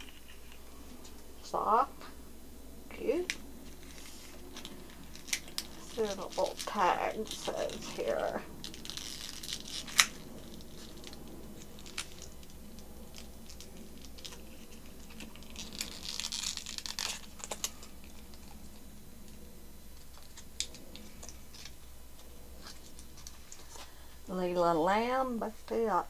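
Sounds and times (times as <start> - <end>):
plastic wrapping crinkling: 0.0 - 1.2, 2.9 - 24.0.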